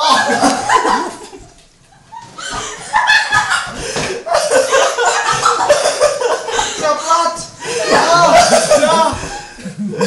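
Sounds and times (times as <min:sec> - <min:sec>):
people laughing: 0:00.0 - 0:10.0
people talking: 0:06.8 - 0:09.4.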